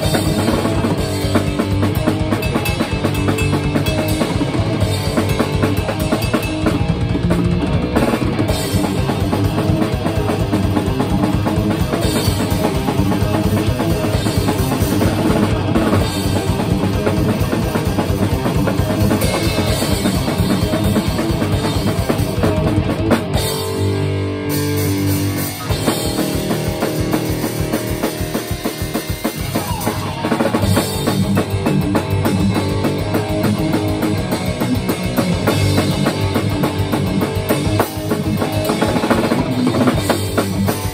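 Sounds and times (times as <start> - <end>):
drum kit: 0.0 - 40.9
electric guitar: 0.0 - 40.9.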